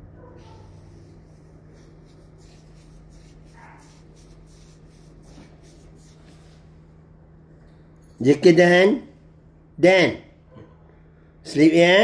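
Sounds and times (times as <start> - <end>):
steady low hum: 0.0 - 12.0
rustling and scraping of movement: 0.3 - 8.3.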